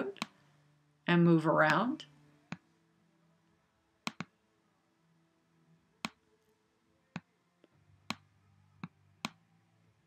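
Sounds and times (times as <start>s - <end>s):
computer mouse clicking: 4.0s - 4.3s, 8.8s - 9.4s.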